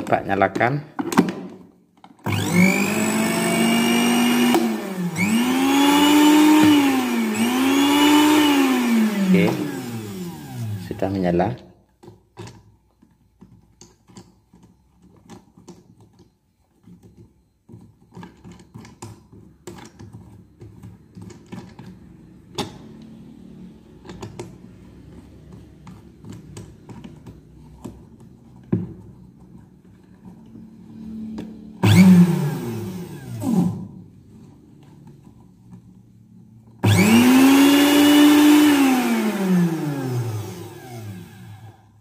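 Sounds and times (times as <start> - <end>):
blender motor running: 2.2 - 11.2, 31.8 - 33.9, 36.8 - 42.0.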